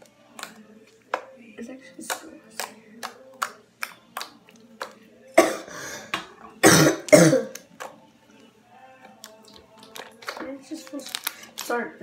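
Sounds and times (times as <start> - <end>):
person coughing: 5.4 - 5.8, 6.6 - 7.6.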